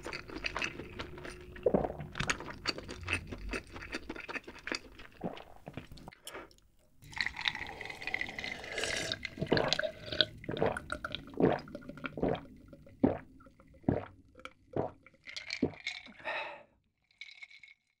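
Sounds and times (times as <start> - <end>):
liquid sloshing: 0.0 - 6.1, 7.0 - 16.2
person gulping a drink: 0.0 - 16.6.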